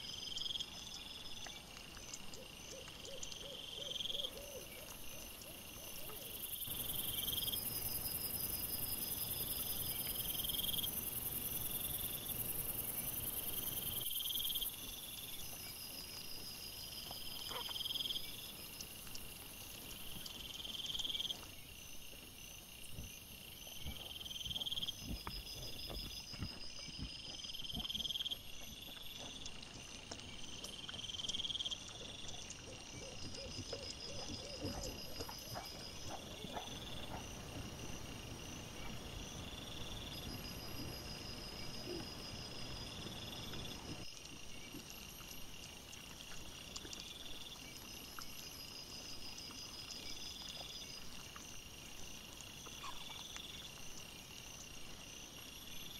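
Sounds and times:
crickets chirping: 0.0 - 55.9.

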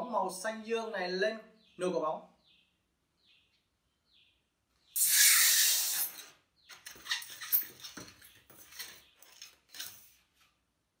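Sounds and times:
breath blowing into balloon: 5.0 - 6.3
rubber balloon squeaking: 5.0 - 6.3, 6.9 - 8.0.

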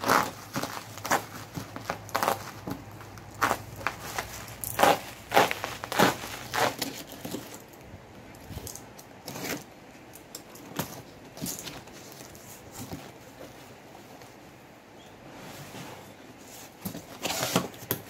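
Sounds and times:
knife slitting tape on cardboard: 0.0 - 2.8, 3.4 - 7.6, 16.9 - 18.0
bubble wrap and tape crackling: 0.0 - 9.7.

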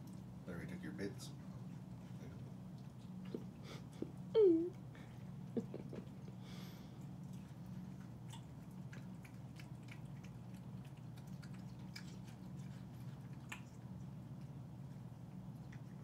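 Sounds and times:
steady low hum: 0.0 - 16.0
cat chewing: 1.3 - 16.0
teeth clicks: 13.3 - 13.8.

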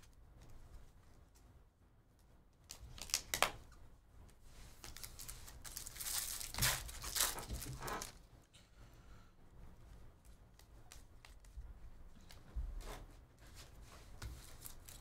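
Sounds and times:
foil wrappers crinkling and tearing: 2.7 - 3.6, 4.8 - 8.2, 14.4 - 15.0.

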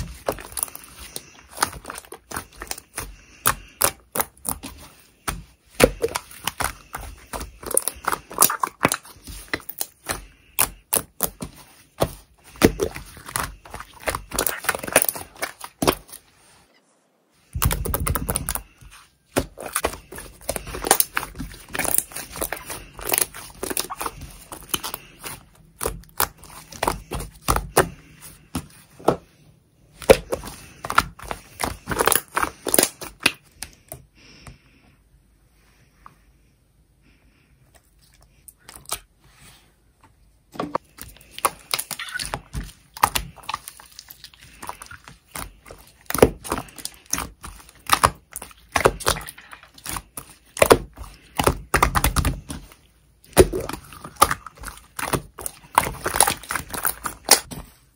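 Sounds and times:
slime crackling and popping: 0.0 - 16.2, 19.4 - 27.9, 30.0 - 33.4, 40.9 - 52.7, 53.3 - 57.5.

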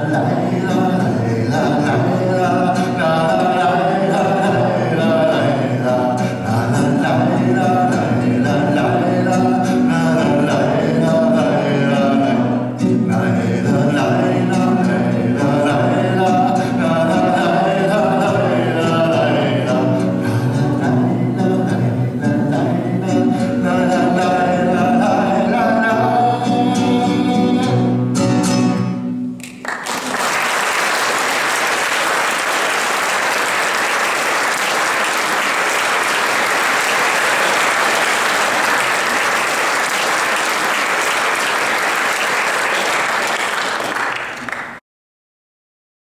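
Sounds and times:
song with instrumental accompaniment: 0.0 - 29.8
audience applauding: 29.4 - 44.8.

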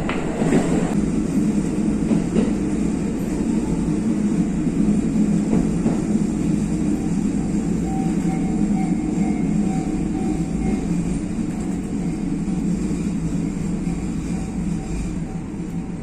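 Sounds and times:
railcar engine and wheels rumble: 0.0 - 16.0.

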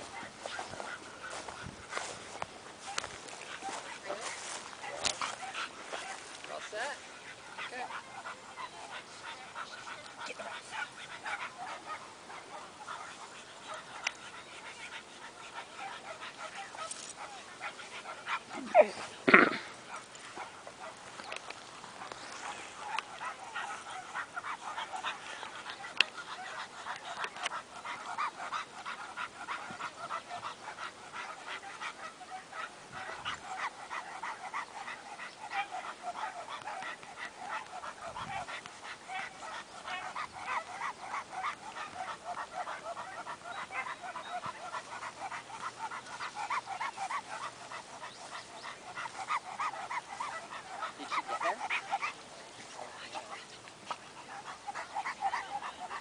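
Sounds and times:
dog barking rapidly: 48.9 - 52.2.

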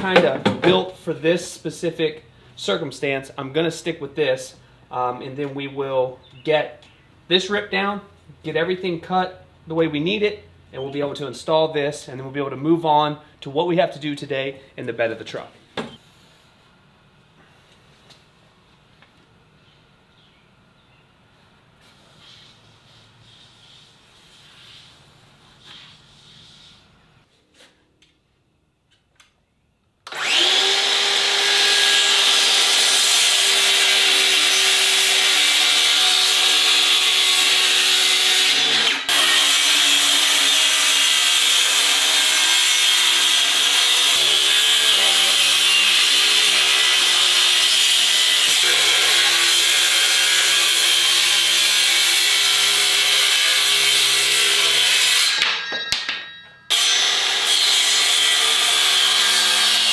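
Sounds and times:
circular saw cutting wood: 30.1 - 55.7, 56.7 - 59.9.

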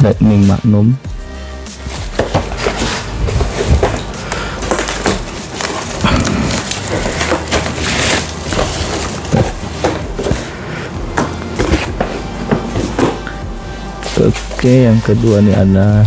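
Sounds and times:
cardboard box and bubble wrap crackling: 1.8 - 10.6.

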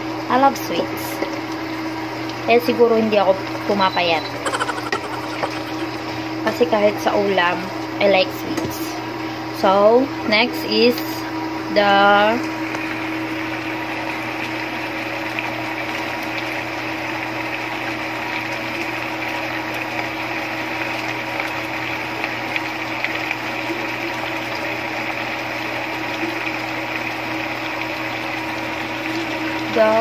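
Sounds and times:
steady mechanical hum: 0.0 - 30.0
food simmering with bubbling pops: 12.6 - 29.6.

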